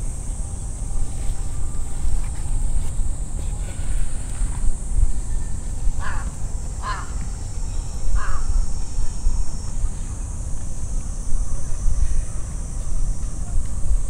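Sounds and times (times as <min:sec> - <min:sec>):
steady high hiss: 0:00.0 - 0:14.0
crow cawing: 0:06.0 - 0:07.2, 0:08.2 - 0:08.5.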